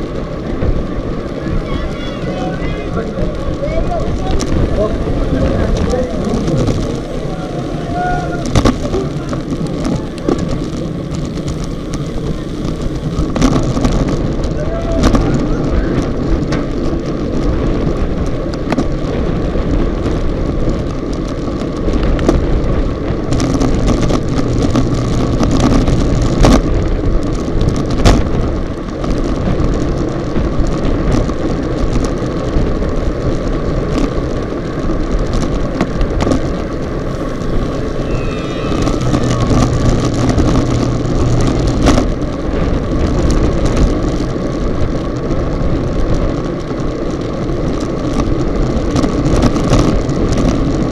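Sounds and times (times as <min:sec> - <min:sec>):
wind rushing over microphone: 0:00.0 - 0:50.9.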